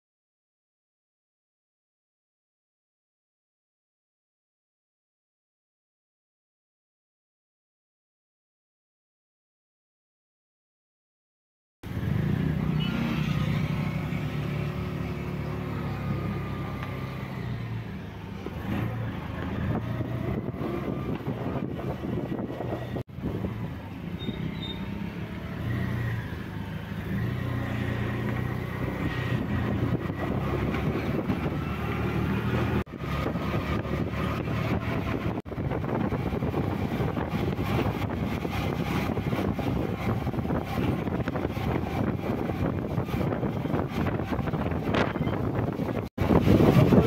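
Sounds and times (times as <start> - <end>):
tyres on wet road: 11.8 - 47.0
vehicle engine hum: 11.8 - 47.0.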